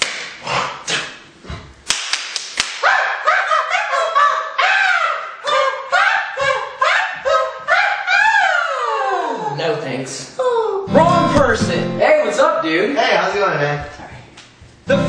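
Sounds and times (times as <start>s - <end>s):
sharp hand slaps: 0.0s - 1.1s, 1.8s - 2.9s
men yelping and shouting: 2.8s - 10.9s.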